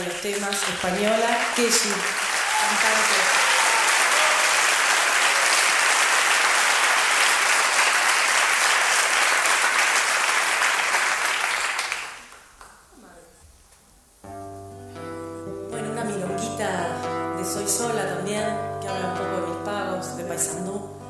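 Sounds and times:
audience applauding: 0:00.0 - 0:12.8.

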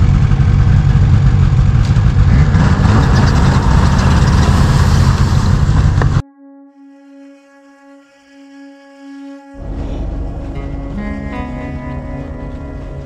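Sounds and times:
snowmobile engine rumbling: 0:00.0 - 0:06.2, 0:09.6 - 0:13.0
slow bowed-string music: 0:06.2 - 0:13.0.

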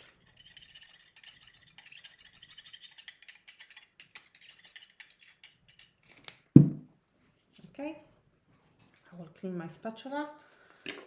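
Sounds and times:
spatula scraping metal cup: 0:00.0 - 0:06.0.

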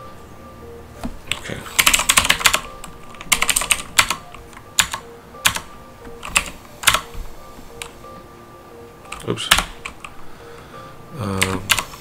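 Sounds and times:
keyboard typing: 0:01.2 - 0:07.2, 0:07.8 - 0:08.0, 0:09.0 - 0:10.2, 0:11.3 - 0:12.0.

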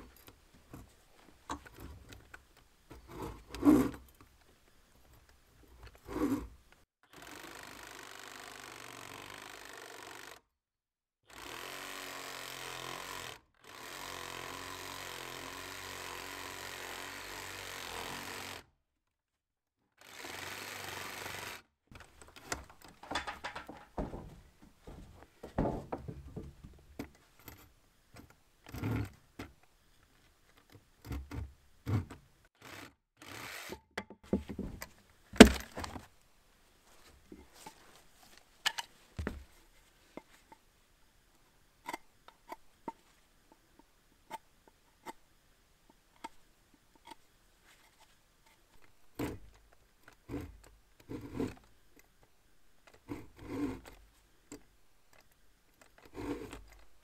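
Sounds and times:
tools and wood knocking and scraping: 0:00.0 - 0:06.8, 0:21.9 - 0:32.3, 0:33.7 - 0:36.2, 0:36.9 - 0:40.7, 0:41.8 - 0:45.2, 0:45.9 - 0:57.0.

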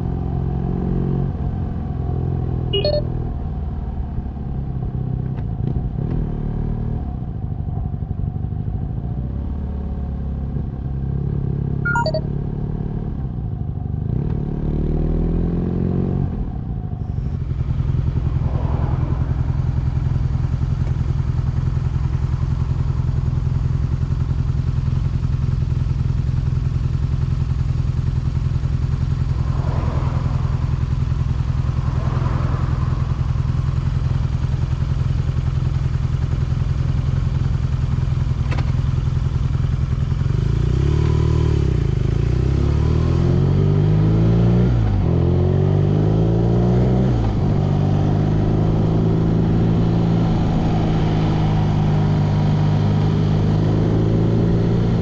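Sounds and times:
motorcycle engine idling: 0:19.5 - 0:29.7, 0:32.6 - 0:40.6.

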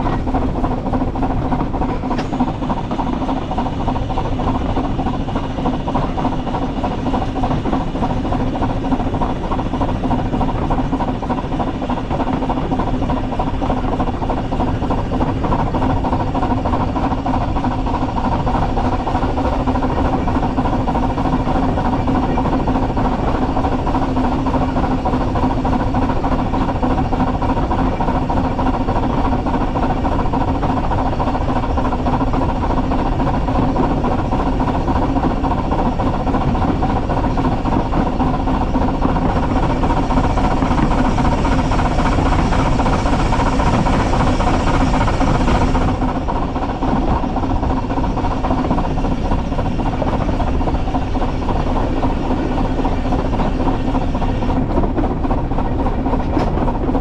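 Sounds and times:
constant hum: 0:00.0 - 0:57.0
steam locomotive wheels rumbling on rail: 0:00.0 - 0:57.0.

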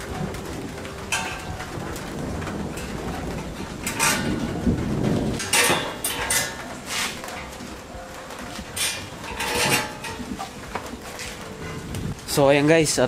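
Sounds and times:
rustling: 0:00.0 - 0:13.0
metallic clinks and knocks: 0:02.4 - 0:04.8, 0:05.4 - 0:11.8.

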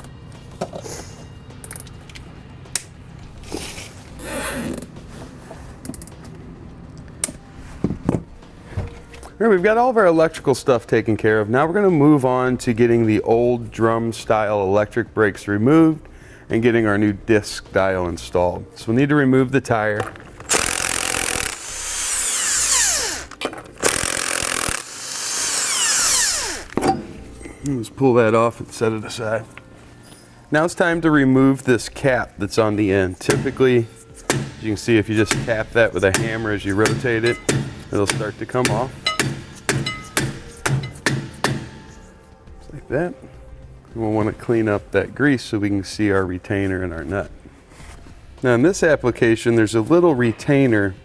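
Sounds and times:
zip ties ratcheting: 0:20.4 - 0:26.8
impact wrench whirring: 0:20.4 - 0:27.0.

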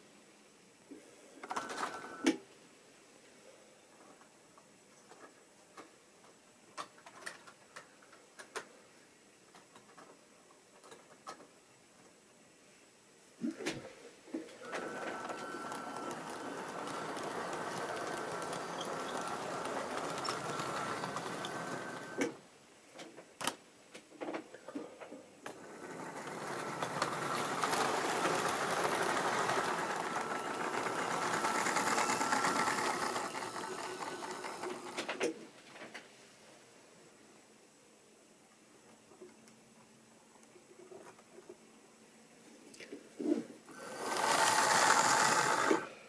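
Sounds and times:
model train motor whirring: 0:14.6 - 0:22.4, 0:25.5 - 0:35.3, 0:43.7 - 0:46.0.

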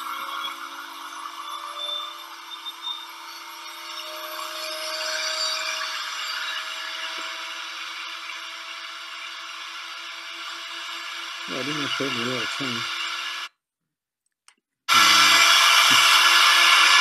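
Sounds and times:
woodworking machine motor hum: 0:06.6 - 0:13.5, 0:14.9 - 0:17.0.

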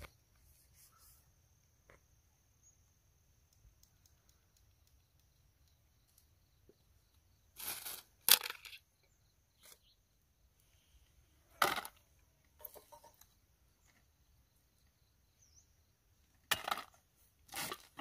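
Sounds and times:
tin cans scraping and rattling: 0:07.5 - 0:08.9, 0:11.5 - 0:13.3, 0:16.3 - 0:18.0.

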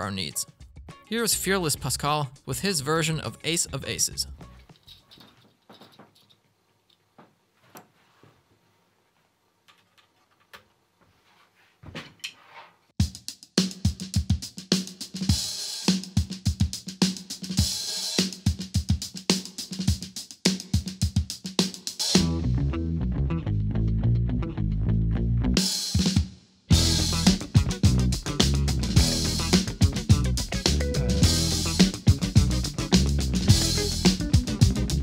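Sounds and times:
drum kit funk groove: 0:13.0 - 0:22.5, 0:25.6 - 0:35.0.

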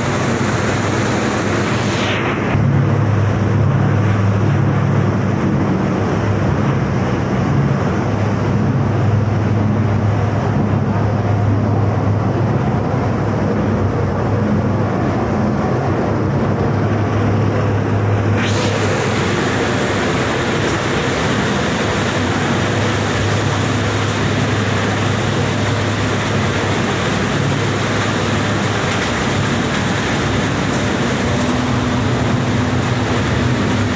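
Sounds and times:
low hum: 0:00.0 - 0:33.9
machinery running: 0:00.0 - 0:33.9
hissing noise: 0:17.2 - 0:33.9.

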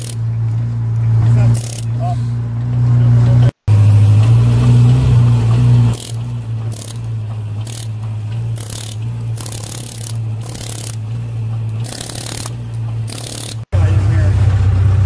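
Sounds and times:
pneumatic air hammer rattling: 0:00.0 - 0:00.6, 0:01.4 - 0:02.4, 0:03.8 - 0:13.7
low engine drone: 0:00.0 - 0:15.0.

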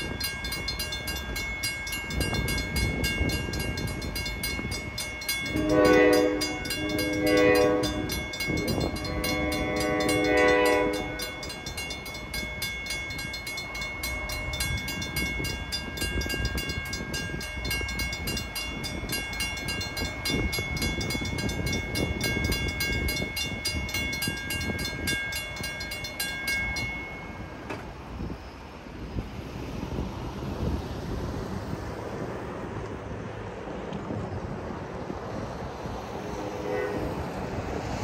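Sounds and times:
railroad crossing bell ringing: 0:00.0 - 0:29.2, 0:36.1 - 0:38.0
passing train rumble: 0:00.0 - 0:38.0
train horn: 0:05.3 - 0:11.6, 0:36.4 - 0:37.4.

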